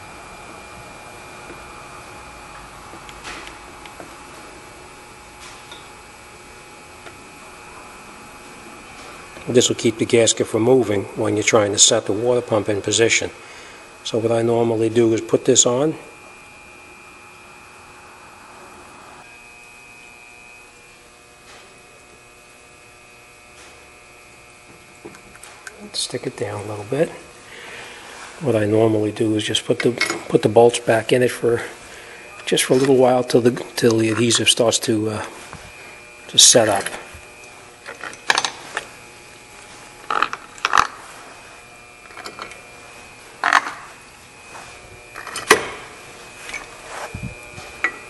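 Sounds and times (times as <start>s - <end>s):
electrical hum: 0.0s - 48.0s
faint brushing sounds: 44.5s - 44.9s, 46.2s - 47.8s.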